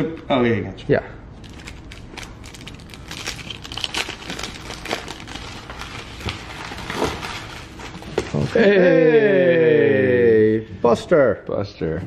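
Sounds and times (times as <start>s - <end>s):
wrapper crinkling: 1.4s - 8.1s.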